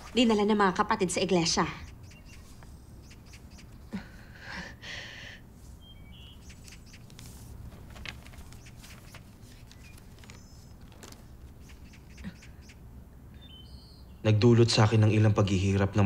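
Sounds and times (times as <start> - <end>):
high bird chirps: 1.4 - 3.9, 5.8 - 7.1, 8.4 - 14.2
paper rustling: 6.5 - 11.9.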